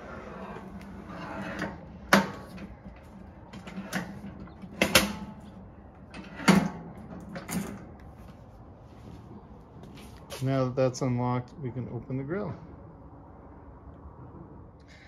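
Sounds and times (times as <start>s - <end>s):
grill lid lock clicks and knocks: 3.5s - 5.4s.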